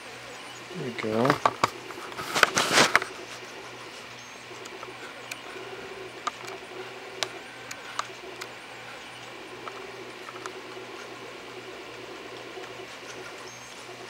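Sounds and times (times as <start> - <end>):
stepper motors humming: 0.0 - 14.0
loud rustle: 1.2 - 4.1.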